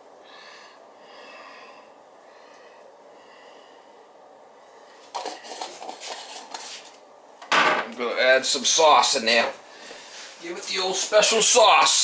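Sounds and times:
faint breathing: 0.0 - 5.8, 9.6 - 10.4
containers rustling and clattering: 5.0 - 7.9.

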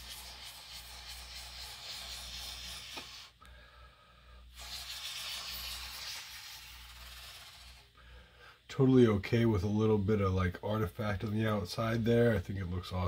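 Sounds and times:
glue squeezing from bottle hissing: 0.0 - 3.4, 4.5 - 7.9.

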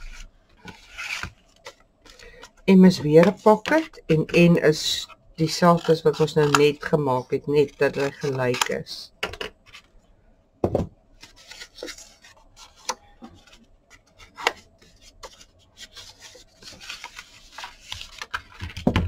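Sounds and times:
cardboard knock: 10.6 - 10.9, 18.6 - 19.0.

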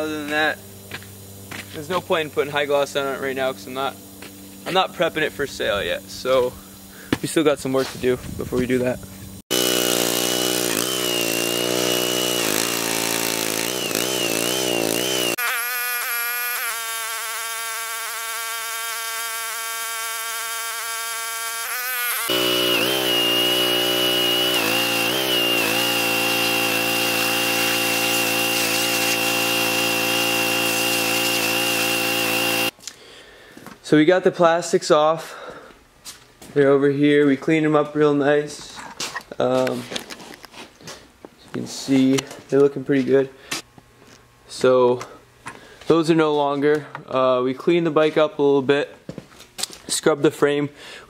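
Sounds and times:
pressure washer spraying: 9.5 - 32.7.

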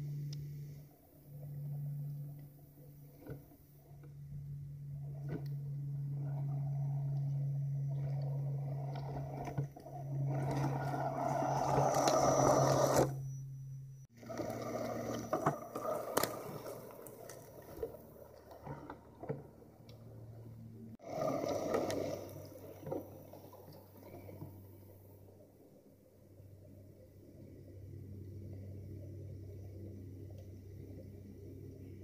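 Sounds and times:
electric motor and gears whining: 0.0 - 24.5.

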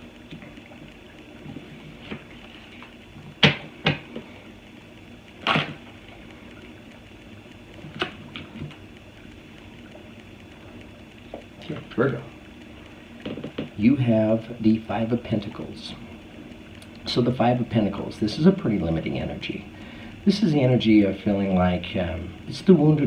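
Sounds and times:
cards snapping and slapping: 5.4 - 5.8.

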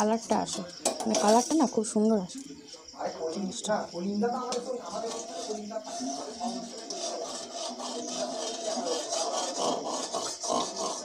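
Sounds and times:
metal spatula scraping a pan: 4.9 - 11.0.

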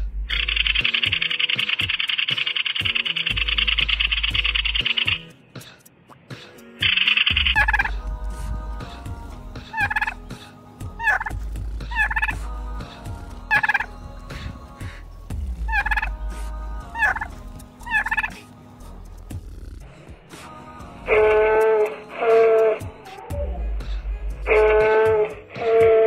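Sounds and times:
turkeys gobbling: 0.3 - 5.2, 6.8 - 8.0, 9.7 - 10.2, 11.0 - 12.5, 13.5 - 13.9, 15.7 - 16.2, 16.9 - 18.4.

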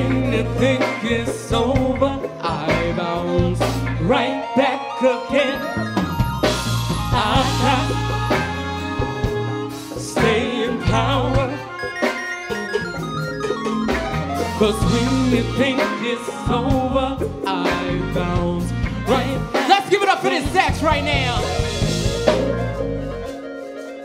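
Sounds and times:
person singing lead: 0.0 - 6.1, 7.0 - 9.0, 13.6 - 20.6
backing singer: 0.0 - 12.2, 13.5 - 21.8
live soul band playing: 0.0 - 24.0.

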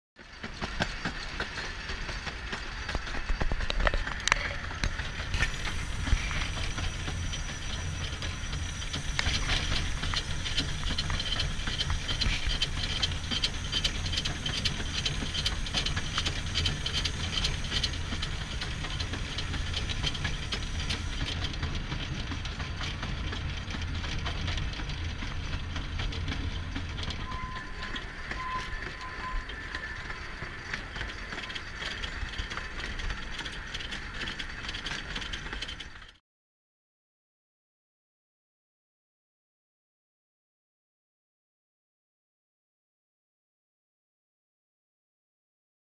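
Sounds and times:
miniature train wheels rumbling: 0.2 - 36.2
rhythmic wheel clicks: 0.2 - 36.2.

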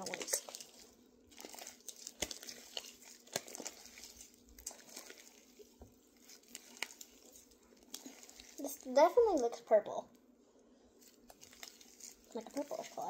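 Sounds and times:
slime being squished by hand: 0.0 - 9.6, 11.0 - 13.0.

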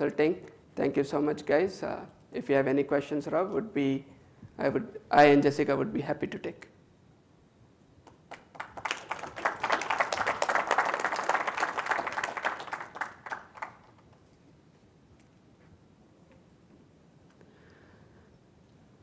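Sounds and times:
audience applauding: 8.1 - 14.2.

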